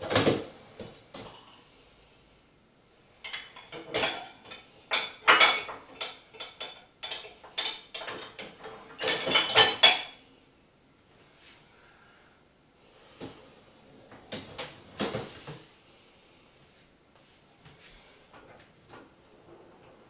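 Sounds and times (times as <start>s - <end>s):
dishes clinking in dishwasher rack: 3.2s - 10.2s.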